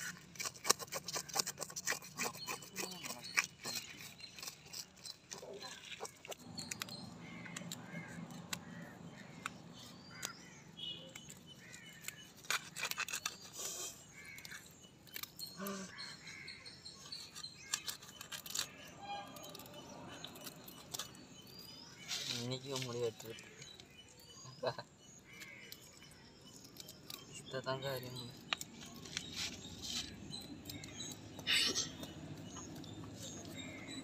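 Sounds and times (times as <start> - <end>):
fish being cut on blade: 0.0 - 6.4
crows calling: 0.0 - 13.1, 14.1 - 14.8, 15.8 - 17.0, 21.8 - 27.6
birds chirping: 0.0 - 34.0.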